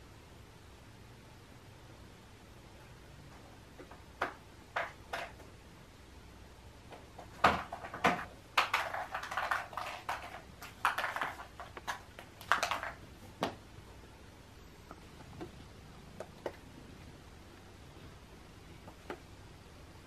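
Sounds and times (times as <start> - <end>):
plastic eggs clattering on tile: 7.2 - 13.0.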